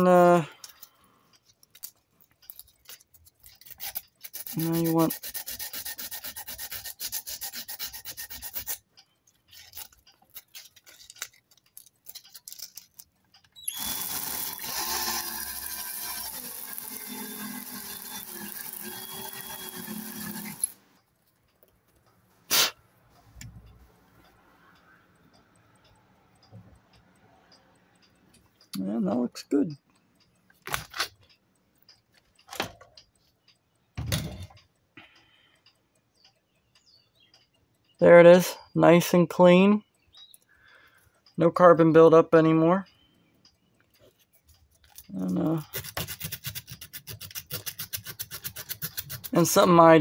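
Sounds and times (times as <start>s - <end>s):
drill spinning with sandpaper rubbing: 3.6s - 8.8s, 13.7s - 20.8s, 45.6s - 49.7s.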